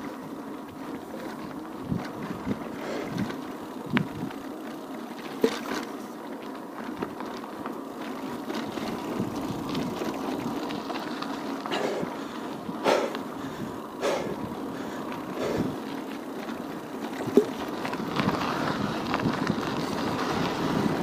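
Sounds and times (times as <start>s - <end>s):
bicycle tyre rolling: 0.0s - 21.0s
bicycle rattling knocks: 14.6s - 19.9s.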